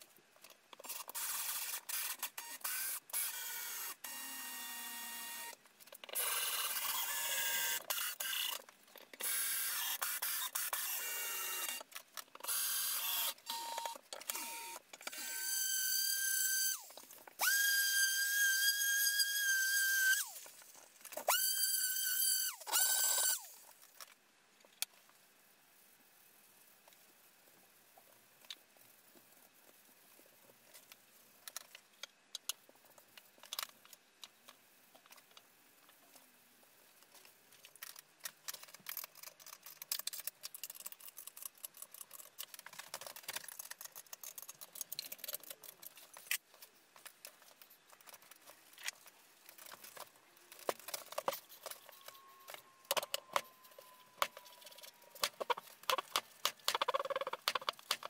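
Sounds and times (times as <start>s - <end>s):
clicks and knocks of handling parts: 0.3s - 2.4s, 5.5s - 7.0s, 7.8s - 9.4s, 30.7s - 36.3s, 36.9s - 58.0s.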